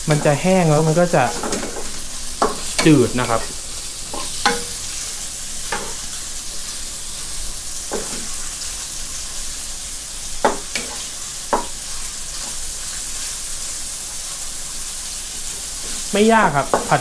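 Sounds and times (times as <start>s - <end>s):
pork sizzling in oil: 0.0s - 17.0s
wooden spatula scraping pan: 7.9s - 8.4s.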